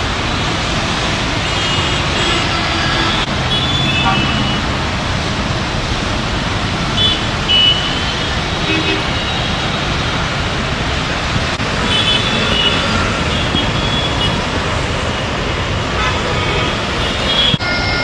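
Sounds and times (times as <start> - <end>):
city traffic noise: 0.0 - 18.0
car horns: 1.4 - 4.7, 16.0 - 18.0.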